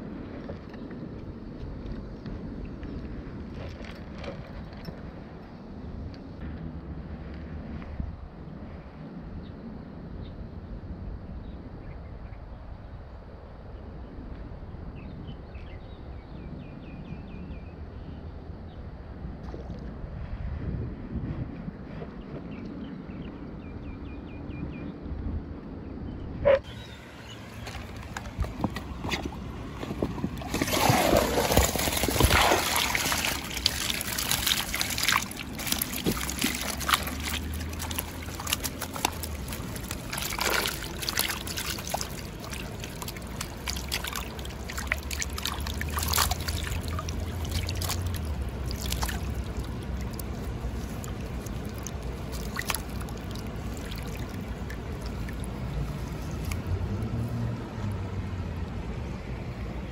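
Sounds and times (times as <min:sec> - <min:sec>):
river water trickling and splashing: 0:26.8 - 0:59.9.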